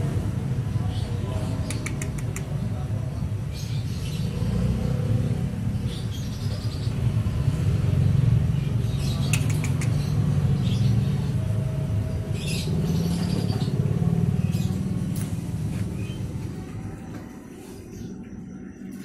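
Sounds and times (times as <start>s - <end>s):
person making mouth clicks: 1.6s - 2.6s, 9.3s - 10.0s.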